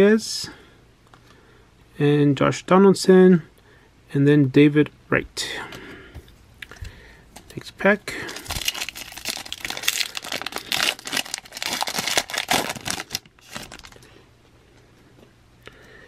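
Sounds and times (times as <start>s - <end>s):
foil wrapper tearing and crinkling: 8.2s - 14.0s.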